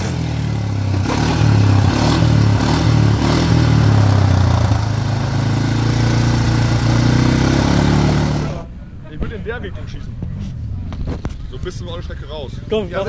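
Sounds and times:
quad engine idling: 0.0s - 8.8s.

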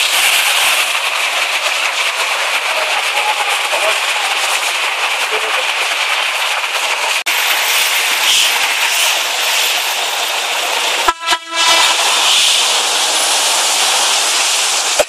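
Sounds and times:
floodwater and rain rushing: 7.3s - 15.0s
vehicle horn: 11.1s - 12.0s.

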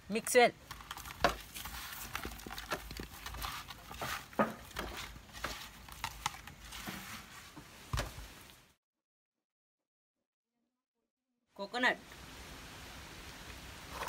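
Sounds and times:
hands mixing food in clay pot: 0.1s - 8.6s.

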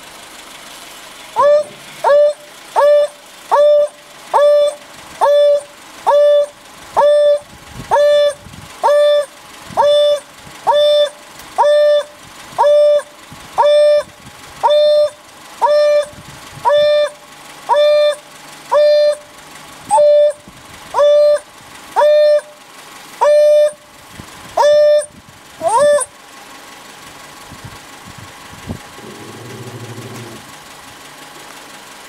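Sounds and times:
wild dog hooting call: 1.4s - 14.1s, 29.0s - 30.5s.

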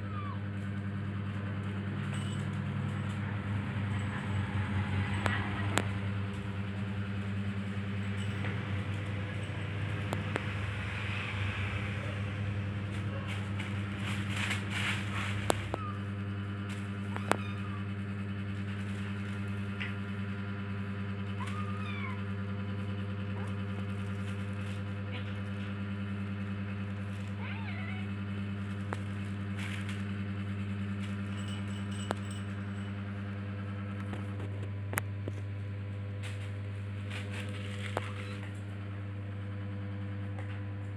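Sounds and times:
low mechanical hum: 0.0s - 40.9s
plastic sheet rustling: 13.2s - 15.8s.

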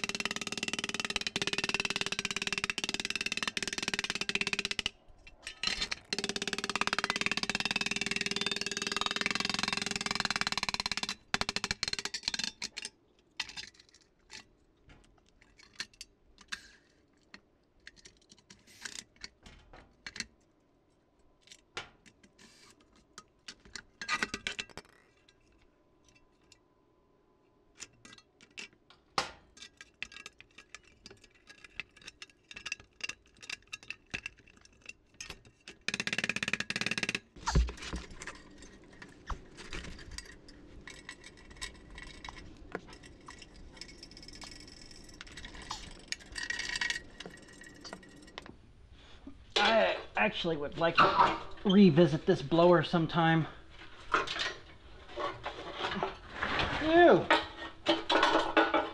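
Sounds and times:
metallic clicks and clinks: 0.0s - 14.5s, 38.0s - 48.5s
metal clatter on workbench: 55.2s - 58.9s.

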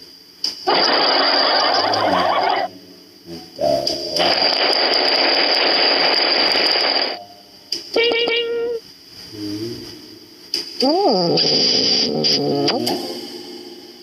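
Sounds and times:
dense noise: 0.0s - 14.0s
held pitched tone: 7.2s - 8.8s.

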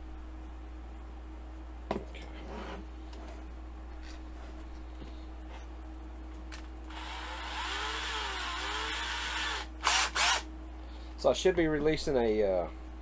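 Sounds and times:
small electric drill: 6.9s - 10.5s.

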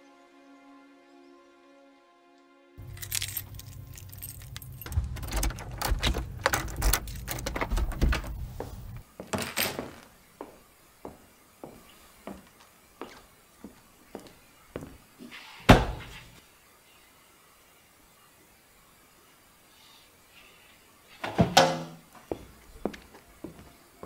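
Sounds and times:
keys jangling: 2.8s - 8.4s
slow footsteps: 7.9s - 15.0s, 22.2s - 23.8s.

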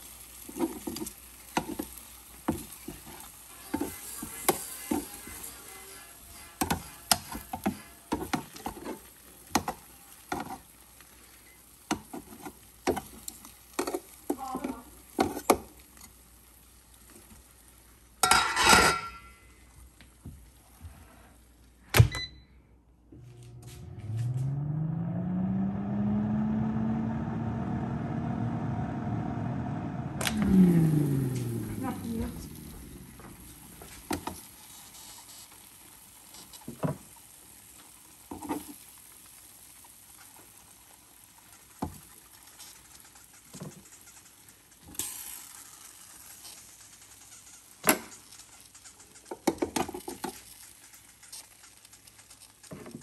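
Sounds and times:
scrape: 5.0s - 8.1s, 20.9s - 21.4s
air fryer fan humming: 23.0s - 53.0s.

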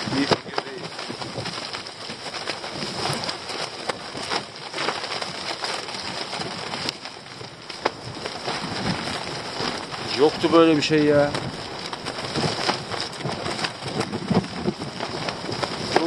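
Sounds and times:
tent fabric flapping: 0.0s - 16.0s
gusty wind rushing: 6.0s - 16.0s.

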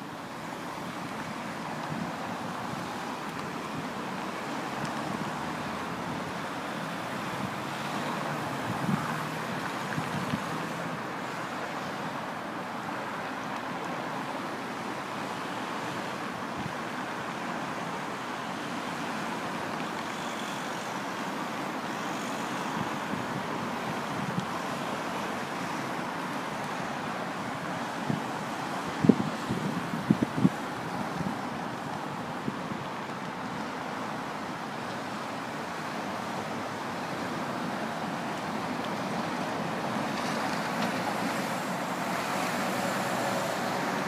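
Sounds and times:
road traffic noise: 0.0s - 44.0s
wind on microphone: 8.4s - 10.7s, 28.0s - 33.5s.

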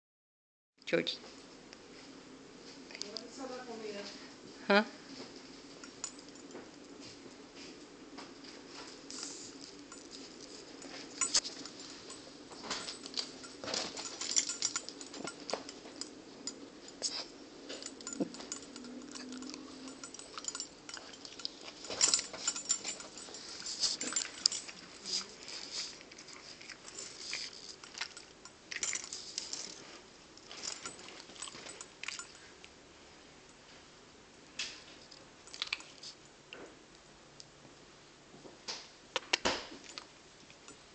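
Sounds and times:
metal collar tag jingling: 5.7s - 7.0s, 9.0s - 32.7s.

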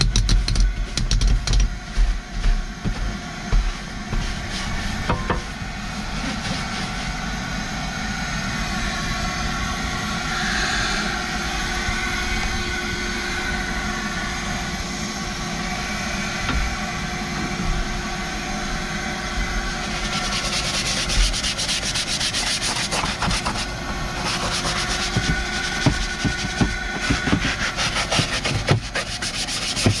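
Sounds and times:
mechanical hum with hiss: 0.0s - 30.0s
brush scrubbing floor mat: 1.9s - 7.3s, 19.8s - 30.0s.

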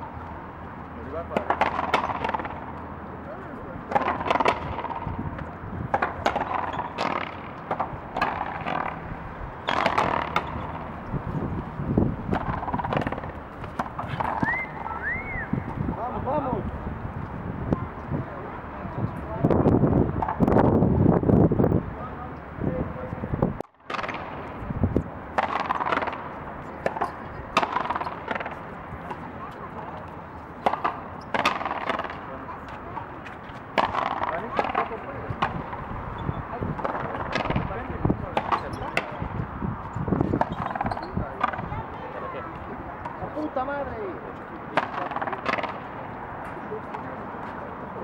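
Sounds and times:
ball cracking off racquets and wall: 1.3s - 2.7s, 3.9s - 11.0s, 12.3s - 14.5s, 23.8s - 24.4s, 25.3s - 28.6s, 30.6s - 32.3s, 33.7s - 35.9s, 36.7s - 39.2s, 44.8s - 45.9s
ball hitting wall: 9.6s - 10.6s.

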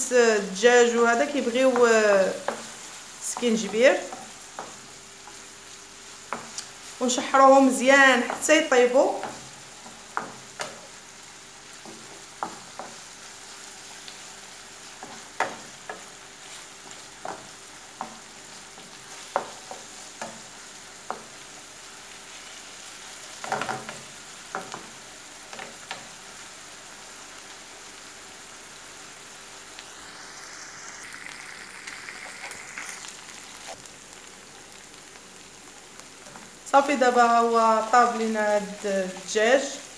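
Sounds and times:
meat and onion sizzling in oil: 0.0s - 39.9s
wooden spatula knocking on pan: 9.2s - 10.8s.

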